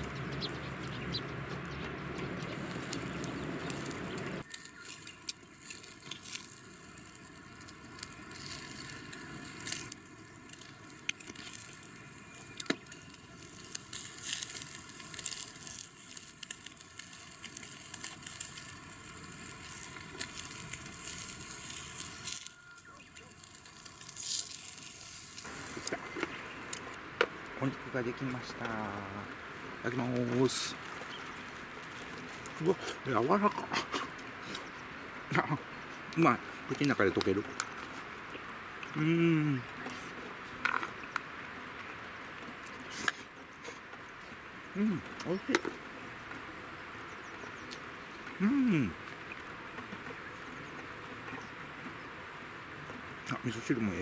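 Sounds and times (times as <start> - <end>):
meat sizzling on grill: 0.0 - 39.6, 44.2 - 50.8
pops and crackles: 1.5 - 27.4, 36.1 - 38.0, 38.8 - 44.0, 44.8 - 46.4, 47.6 - 51.5.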